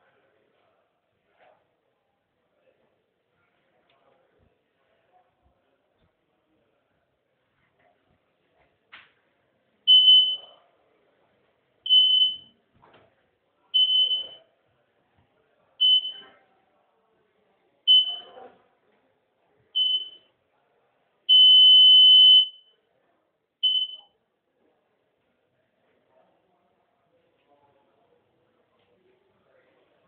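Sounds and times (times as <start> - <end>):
high-pitched electronic beeps: 9.9 - 10.4, 23.6 - 24.0
long electronic beep: 9.9 - 10.4, 11.9 - 12.4, 13.8 - 14.4, 15.8 - 16.2, 19.8 - 20.2, 21.3 - 22.6, 23.6 - 24.0.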